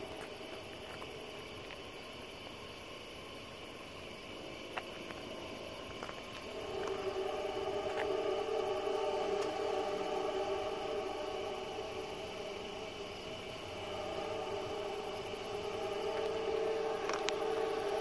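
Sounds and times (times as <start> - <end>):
night insects pulsing: 0.0 - 18.0
train horn chord: 6.5 - 12.0, 13.8 - 18.0.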